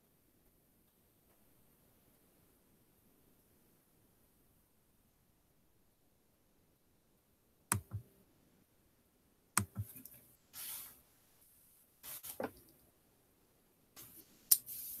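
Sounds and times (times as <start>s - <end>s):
sharp clicks: 7.7s - 8.1s, 9.6s - 10.2s
rustling hisses: 9.9s - 11.1s, 12.0s - 12.5s, 14.0s - 15.0s.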